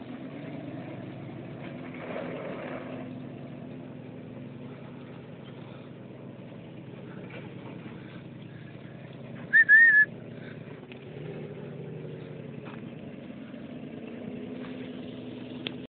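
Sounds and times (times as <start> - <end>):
truck engine running: 0.0 - 15.9
high whistle-like tone: 9.5 - 10.1.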